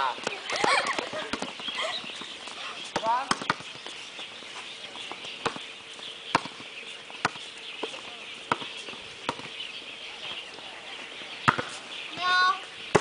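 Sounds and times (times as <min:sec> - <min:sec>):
volleyball being struck: 0:11.4 - 0:11.8.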